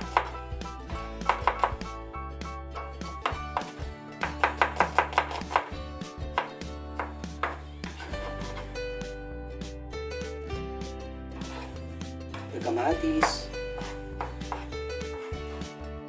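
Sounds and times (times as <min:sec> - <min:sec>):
knife chopping onion on wooden board: 0:00.0 - 0:02.0, 0:03.0 - 0:08.8, 0:11.4 - 0:15.7.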